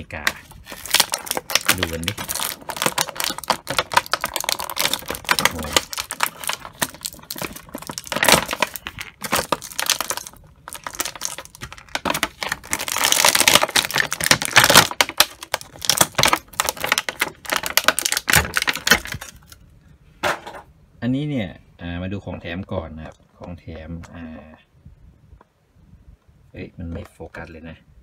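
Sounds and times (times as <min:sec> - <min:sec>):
plastic packaging crinkling: 0:00.0 - 0:19.6.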